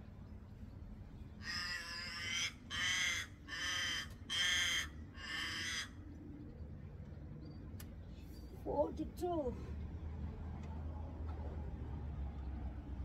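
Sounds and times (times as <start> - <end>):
crow cawing: 1.4 - 6.0.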